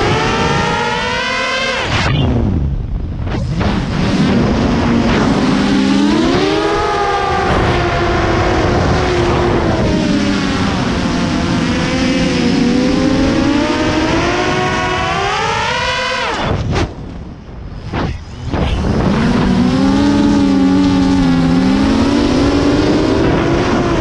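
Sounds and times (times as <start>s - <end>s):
drone motors whining: 0.0s - 24.0s.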